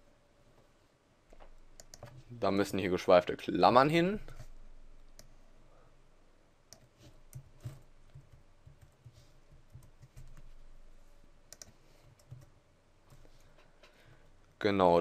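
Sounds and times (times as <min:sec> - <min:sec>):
keyboard and mouse clicks: 0:01.3 - 0:02.2, 0:11.5 - 0:12.5.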